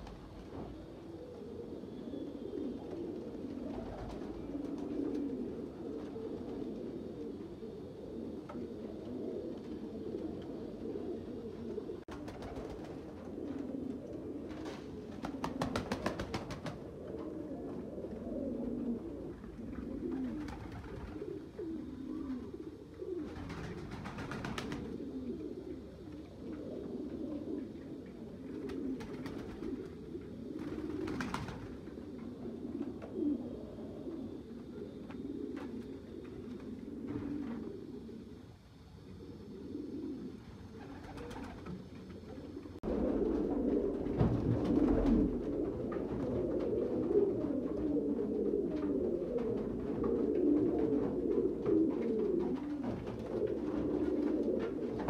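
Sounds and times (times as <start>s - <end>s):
pigeons cooing: 0.0s - 55.0s.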